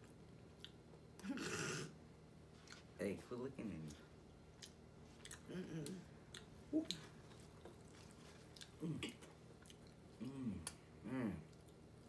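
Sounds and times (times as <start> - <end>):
people chewing and biting food: 3.8 - 12.0
person humming: 5.4 - 6.1, 6.7 - 7.0, 10.2 - 11.5.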